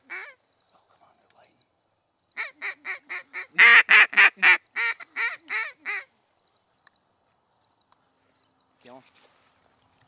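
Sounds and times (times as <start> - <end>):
duck quacking: 2.4 - 6.1.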